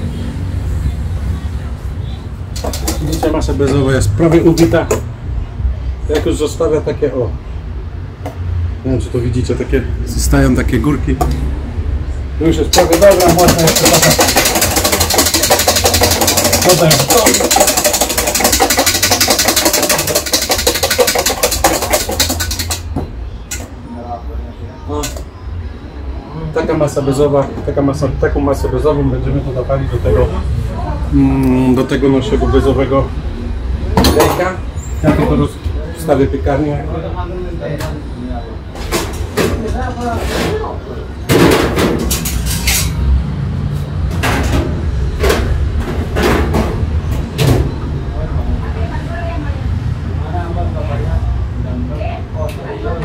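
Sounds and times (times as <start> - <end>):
electric hand mixer running: 12.8 - 22.8.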